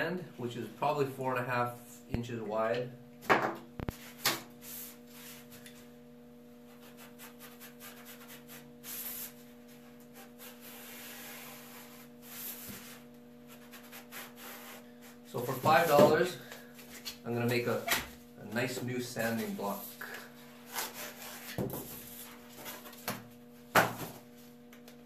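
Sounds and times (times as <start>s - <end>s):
steady low hum: 0.0s - 25.0s
hand tool scraping foam: 6.7s - 16.3s, 19.2s - 23.0s.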